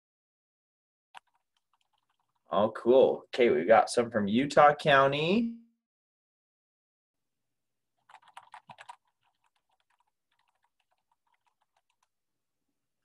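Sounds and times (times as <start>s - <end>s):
typing on keyboard: 1.1s - 2.5s, 8.0s - 12.1s.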